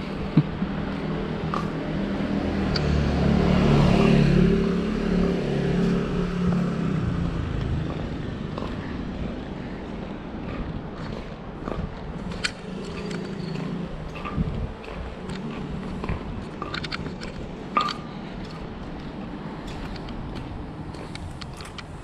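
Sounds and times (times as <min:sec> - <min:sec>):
street noise: 0:00.0 - 0:22.0
vehicle engine driving past: 0:02.0 - 0:09.4.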